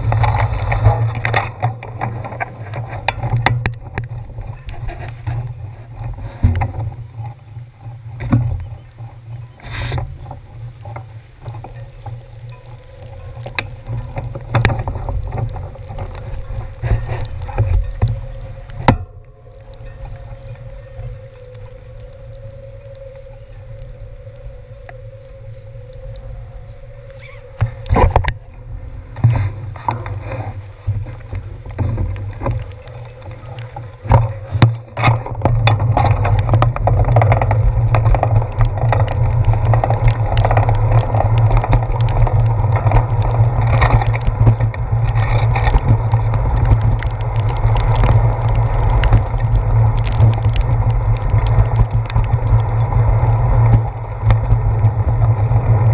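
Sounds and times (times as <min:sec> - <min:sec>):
bicycle knocks and rattles: 0:00.0 - 0:07.2, 0:08.2 - 0:19.2
bicycle road rumble and wind: 0:00.0 - 0:55.9.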